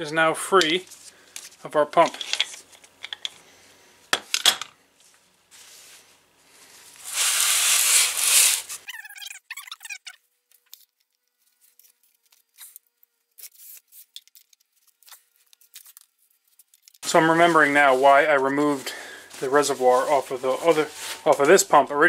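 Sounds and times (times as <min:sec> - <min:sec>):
paper towel rustling: 0:05.0 - 0:08.9, 0:17.0 - 0:22.0
towel squeaking on metal housing: 0:07.3 - 0:10.2.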